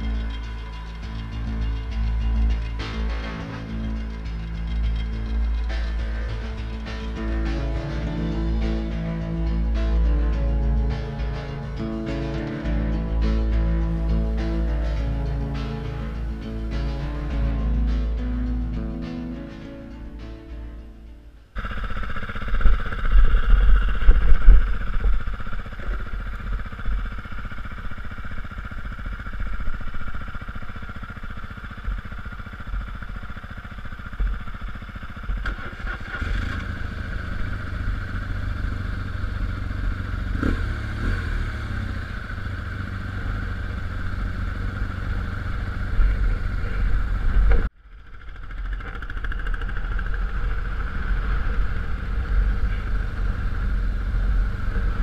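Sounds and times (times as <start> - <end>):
motorcycle engine running: 0.0 - 55.0.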